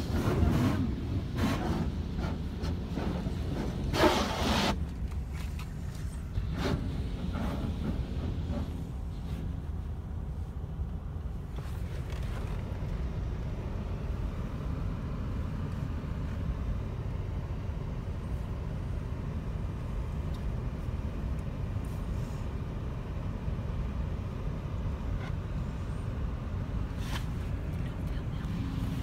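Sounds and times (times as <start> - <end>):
water spraying over car: 0.0 - 9.5
car wash machinery rumble: 0.0 - 29.0.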